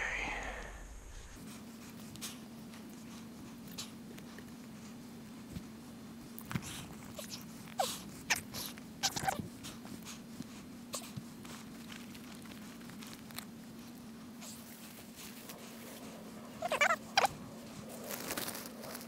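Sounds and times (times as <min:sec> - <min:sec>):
faint low hum: 0:00.0 - 0:19.0
fabric rustling and crinkling: 0:17.7 - 0:19.0.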